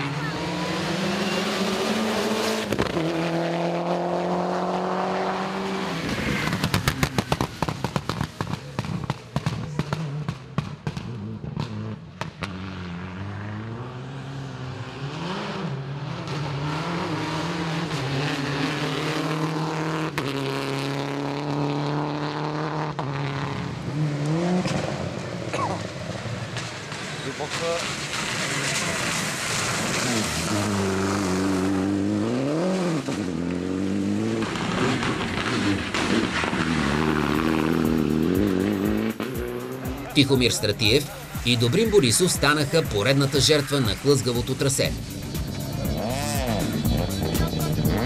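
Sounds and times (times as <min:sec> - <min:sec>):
rally car engine high revs: 0:00.0 - 0:48.0
rally car shifting gears approaching: 0:00.0 - 0:48.0
exhaust crackling pops: 0:06.4 - 0:12.5, 0:34.4 - 0:36.8.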